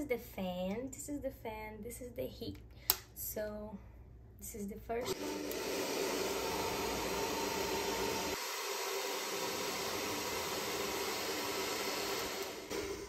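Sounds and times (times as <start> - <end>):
hair dryer running: 5.0 - 13.0.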